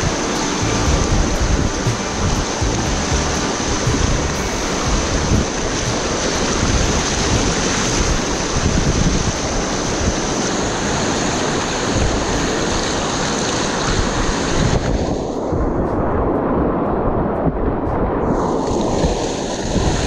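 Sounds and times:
whitewater rapids rushing: 0.0s - 15.4s.

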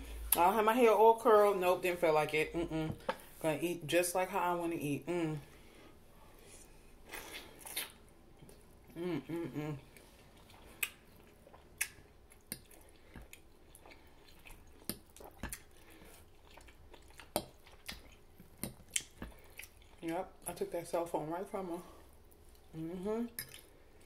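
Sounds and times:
person chewing greens: 6.4s - 20.1s, 22.1s - 24.0s.

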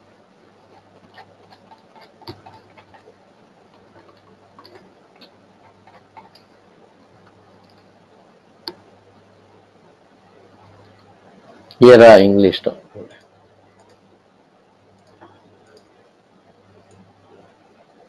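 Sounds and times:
steady low hum: 0.0s - 18.0s
mouse scroll wheel clicking: 0.7s - 6.6s.

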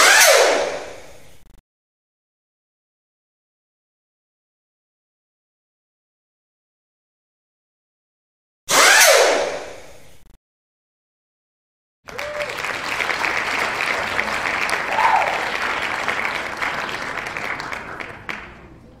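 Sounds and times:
crowd applauding: 12.0s - 19.0s.

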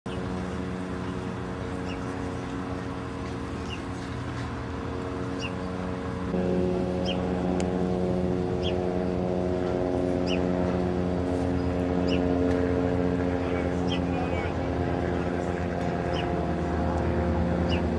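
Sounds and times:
motor hum: 0.1s - 17.9s.

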